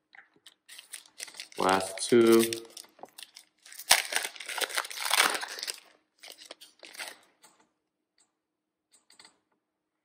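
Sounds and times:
foil wrapper crinkling: 0.7s - 7.2s.

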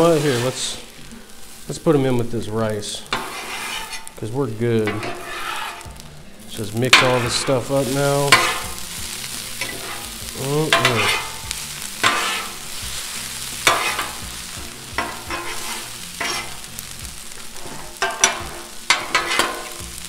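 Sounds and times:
food sizzling on a griddle: 0.0s - 20.0s
metal spatulas scraping and clanking: 3.0s - 6.0s, 6.6s - 8.8s, 9.5s - 14.3s, 14.9s - 16.7s, 17.5s - 19.9s.

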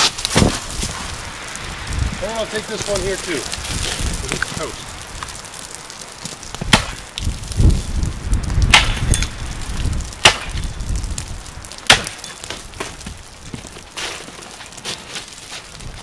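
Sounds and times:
axe chopping into tree trunk: 6.7s - 7.0s, 8.7s - 9.2s, 10.2s - 10.6s, 11.9s - 12.9s.

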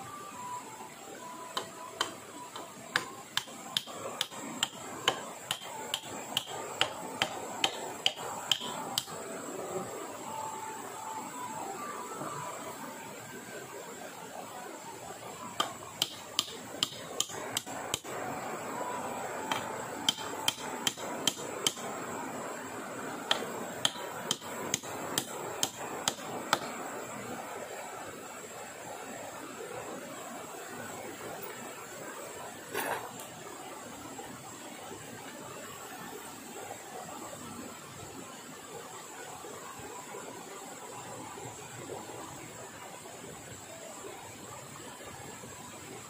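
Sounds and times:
steady high tone: 0.0s - 3.3s, 8.1s - 13.8s
hand tool striking wood: 2.9s - 9.1s, 15.6s - 18.1s, 19.5s - 21.8s, 23.3s - 26.7s.

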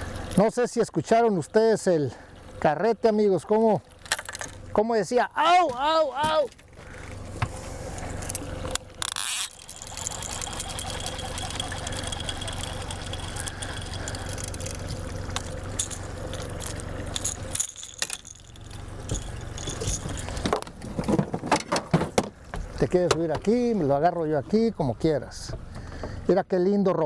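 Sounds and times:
outboard motor idling: 0.0s - 21.1s, 22.2s - 26.5s
tackle rattling and clicking: 8.2s - 21.0s
fishing reel cranking: 9.0s - 20.4s.

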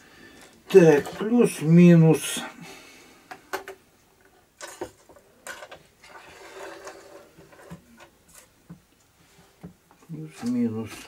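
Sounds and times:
small clicks taps and scrapes: 3.3s - 11.0s.

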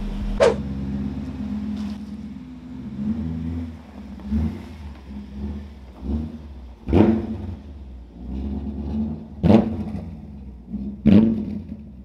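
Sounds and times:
engine throttle blips: 0.0s - 7.7s
v-eight engine at low revs: 0.0s - 12.0s.

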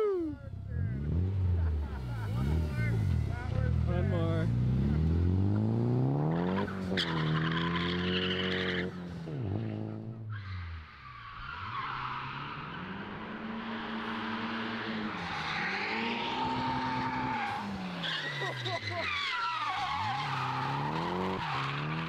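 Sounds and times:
car engine revving: 0.5s - 22.0s
tyres squealing: 16.6s - 22.0s.

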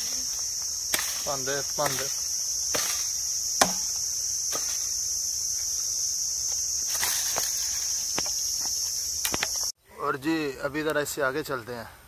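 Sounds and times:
high insect drone: 0.0s - 9.8s
axe chopping branch: 0.8s - 4.9s.

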